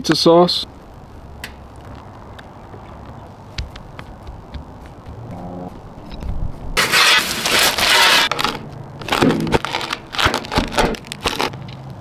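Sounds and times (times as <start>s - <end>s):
pizza crust crunching under a blade: 6.8s - 11.6s.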